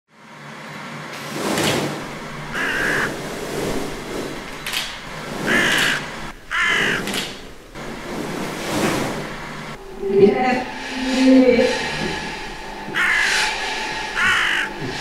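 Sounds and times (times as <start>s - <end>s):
breathy whooshing puffs: 1.3s - 15.0s
harsh crow-like caws: 2.5s - 3.2s, 5.5s - 7.3s, 12.3s - 14.9s.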